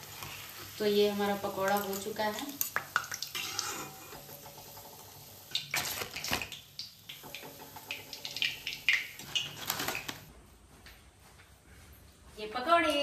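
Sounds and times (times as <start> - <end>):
hot oil sizzling: 0.0 - 10.3.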